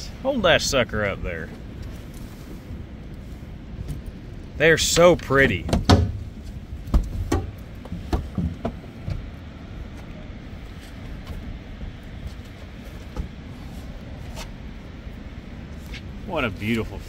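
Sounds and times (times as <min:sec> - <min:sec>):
steady low rumble: 0:00.0 - 0:17.0
knocks and thumps on boat deck: 0:05.4 - 0:09.4.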